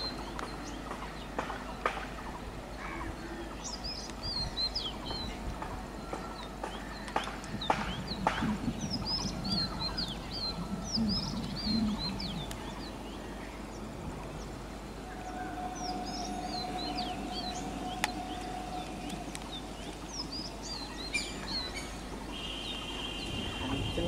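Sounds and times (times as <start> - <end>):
small birds chirping: 0.0 - 24.0
faint hum: 7.6 - 24.0.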